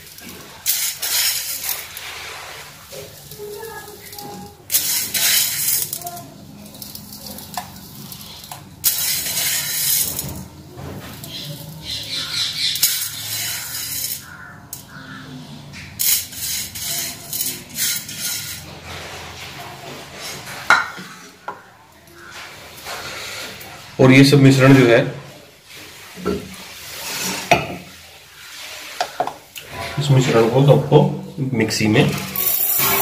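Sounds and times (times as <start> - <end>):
grains rustling being poured: 0.0 - 11.8, 12.8 - 14.5, 32.3 - 33.0
steel spoon clinking dishes: 32.3 - 33.0.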